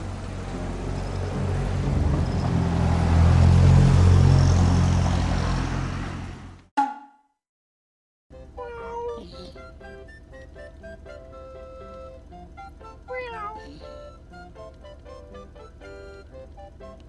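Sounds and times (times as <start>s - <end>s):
car passing by: 0.0s - 6.7s.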